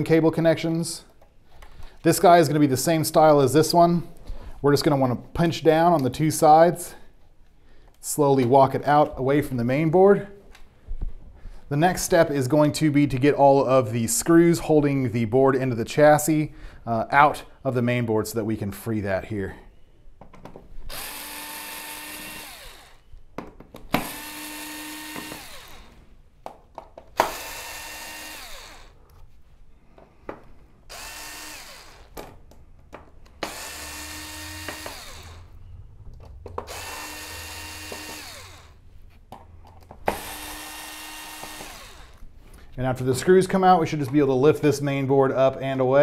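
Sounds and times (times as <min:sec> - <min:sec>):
electric screwdriver motor whine: 0:20.9 - 0:23.2, 0:24.0 - 0:26.0, 0:27.2 - 0:29.0, 0:30.9 - 0:32.1, 0:33.4 - 0:35.6, 0:36.5 - 0:38.8, 0:40.1 - 0:42.2.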